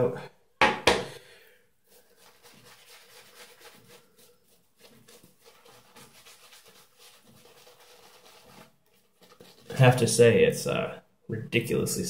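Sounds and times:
shaving brush swishing through lather: 1.8 - 10.2.

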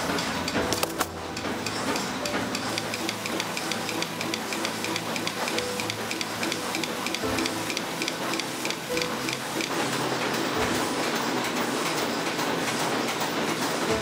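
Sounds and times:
thread-rolling machine clatter: 0.0 - 14.0.

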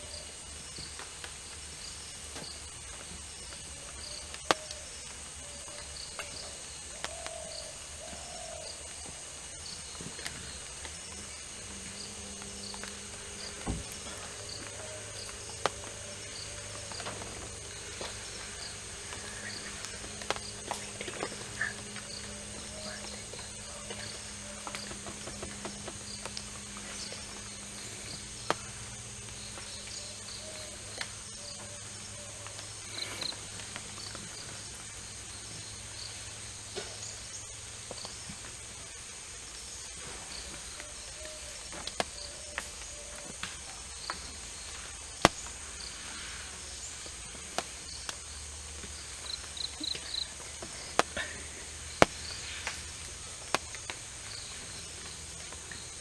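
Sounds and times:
insects droning: 0.0 - 56.0
low steady hum: 0.0 - 56.0
elephants tearing undergrowth: 6.3 - 31.2
sharp crack: 41.7 - 55.9.

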